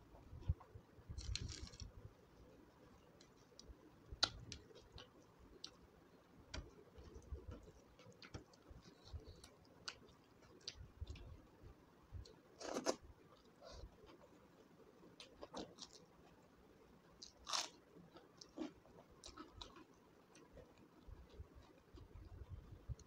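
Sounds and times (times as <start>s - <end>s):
chewing: 12.6s - 16.4s, 17.2s - 22.3s.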